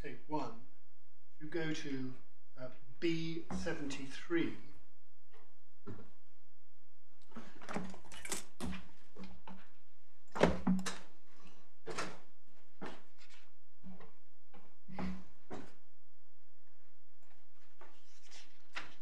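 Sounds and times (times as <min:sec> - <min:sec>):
paper pages rustling: 0:17.7 - 0:19.0.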